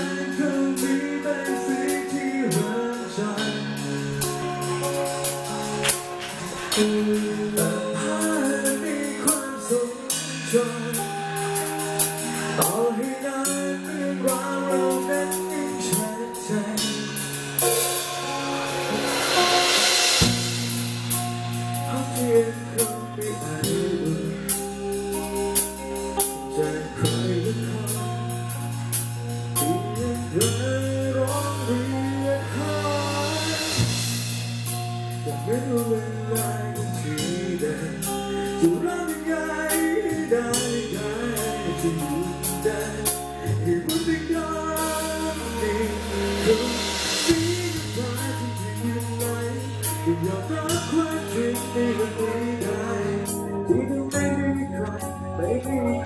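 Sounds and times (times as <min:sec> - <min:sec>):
man singing into microphone: 0:00.0 - 0:04.9, 0:06.1 - 0:17.8, 0:21.2 - 0:34.1, 0:34.8 - 0:56.0
bass guitar: 0:00.0 - 0:56.0
drum kit: 0:00.0 - 0:56.0
electric guitar: 0:00.0 - 0:56.0
cymbals crashing: 0:15.0 - 0:23.4, 0:31.3 - 0:35.9.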